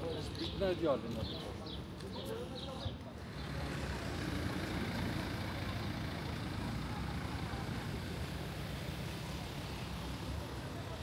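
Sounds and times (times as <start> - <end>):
vehicle engine rumbling: 3.1 - 11.0.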